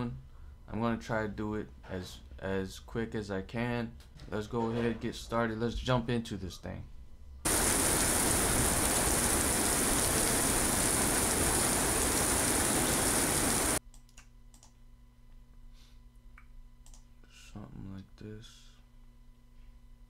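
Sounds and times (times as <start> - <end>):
heavy rain falling: 7.5 - 13.8
faint computer mouse clicks: 13.9 - 14.8, 16.4 - 17.1.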